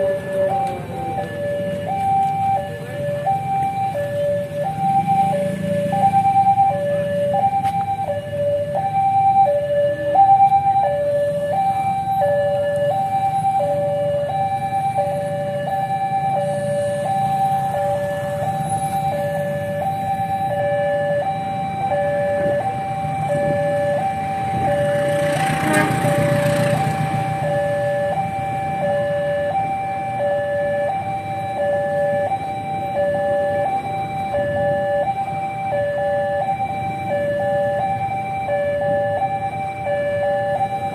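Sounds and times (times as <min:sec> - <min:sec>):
level crossing hi-lo alarm: 0:00.0 - 0:40.9
road traffic hum: 0:00.0 - 0:40.9.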